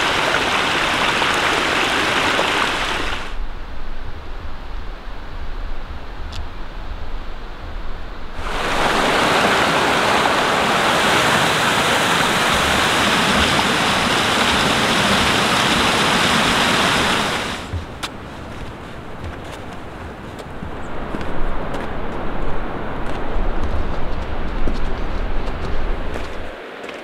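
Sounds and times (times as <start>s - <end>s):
creek rushing over rocks: 0.0s - 3.4s, 8.4s - 23.6s.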